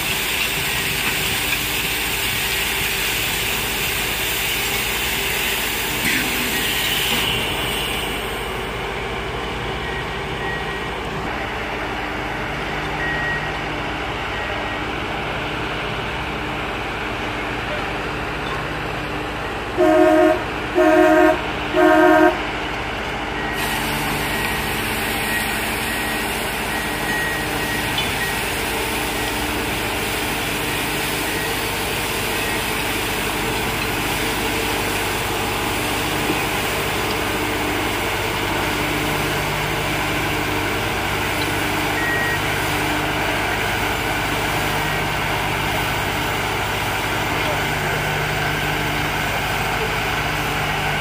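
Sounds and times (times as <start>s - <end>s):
track machine engine running: 0.0s - 51.0s
loud warning beeps: 5.3s - 8.6s, 9.8s - 11.7s, 23.3s - 29.6s, 30.7s - 32.9s, 41.9s - 42.6s.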